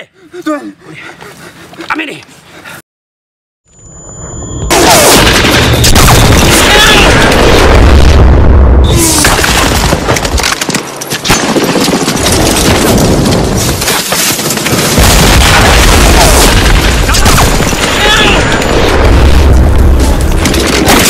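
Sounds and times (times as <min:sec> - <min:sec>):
booming explosions: 0:04.7 - 0:10.4, 0:14.6 - 0:21.0.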